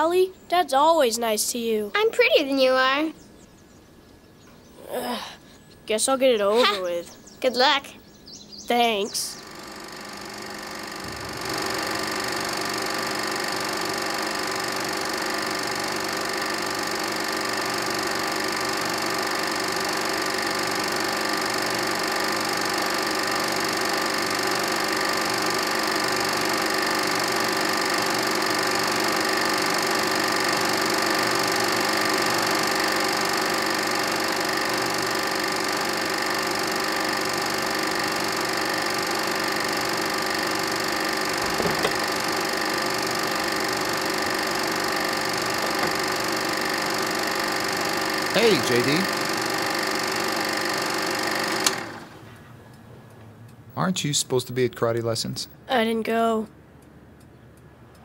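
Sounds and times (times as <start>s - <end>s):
film projector whirring and clattering: 0.0s - 3.0s, 5.9s - 53.8s.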